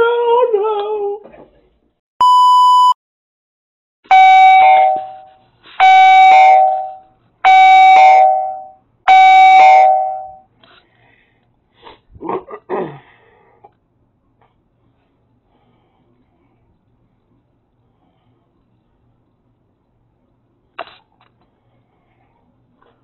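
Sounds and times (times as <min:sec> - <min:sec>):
test tone beep: 0:02.2 - 0:03.0, 0:04.1 - 0:10.4
two-note doorbell chime: 0:04.1 - 0:05.3, 0:06.0 - 0:10.4.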